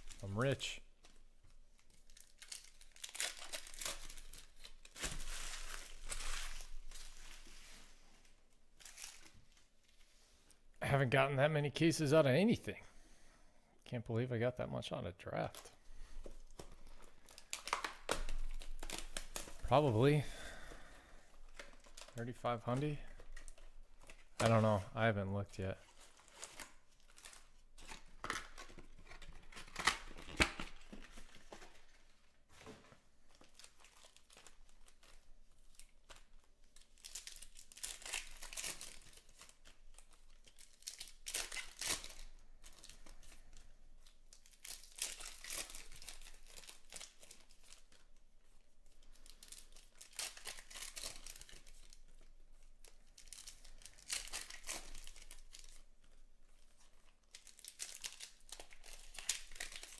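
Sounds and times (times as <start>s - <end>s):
wrappers crinkling: 0.0s - 10.0s, 15.4s - 59.9s
foil packs tearing: 57.3s - 59.9s.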